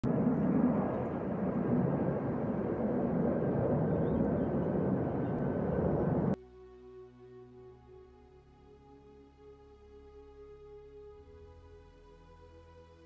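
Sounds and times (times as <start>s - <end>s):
outdoor background rumble: 0.0s - 6.4s.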